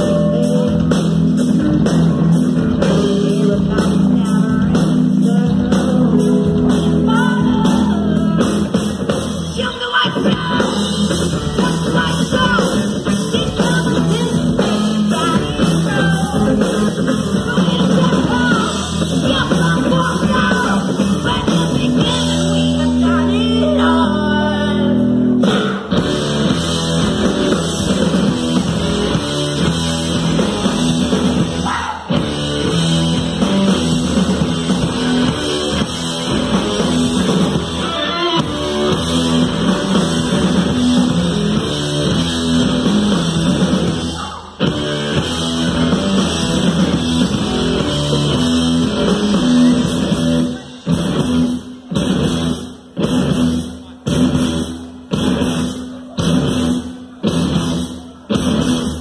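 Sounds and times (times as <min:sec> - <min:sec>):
rock band playing live: 0:00.0 - 0:59.0.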